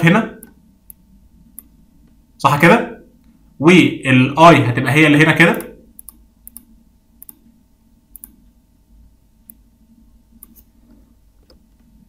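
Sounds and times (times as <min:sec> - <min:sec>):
low steady hum: 0:00.0 - 0:12.0
computer mouse clicks: 0:05.5 - 0:07.4, 0:08.1 - 0:08.4, 0:09.4 - 0:09.6, 0:10.4 - 0:11.6.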